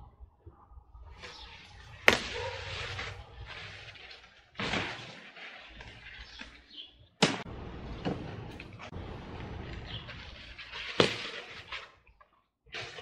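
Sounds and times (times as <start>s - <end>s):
large leaves rustling: 1.2s - 6.9s, 7.5s - 11.9s.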